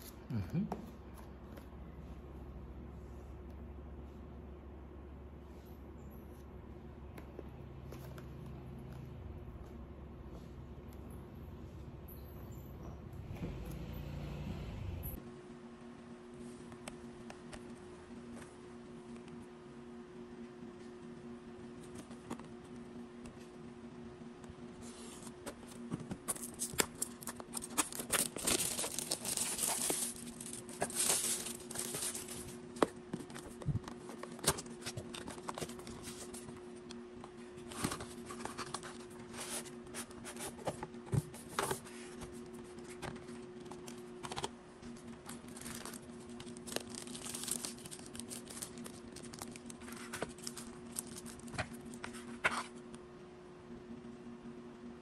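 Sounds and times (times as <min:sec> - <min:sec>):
steady low hum: 0:00.0 - 0:55.0
paper rustling and crinkling: 0:24.8 - 0:36.6, 0:37.3 - 0:52.8.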